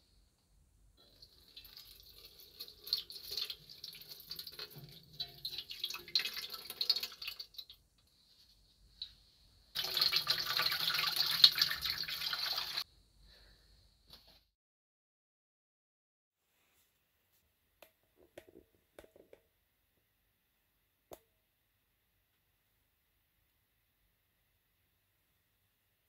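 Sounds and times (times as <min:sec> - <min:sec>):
liquid pouring into metal basin: 0:01.0 - 0:07.8, 0:09.8 - 0:12.8.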